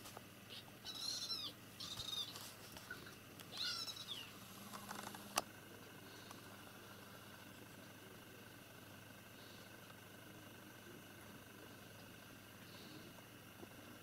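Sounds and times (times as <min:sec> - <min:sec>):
kitten squeaking: 0:00.5 - 0:02.4, 0:03.5 - 0:04.4.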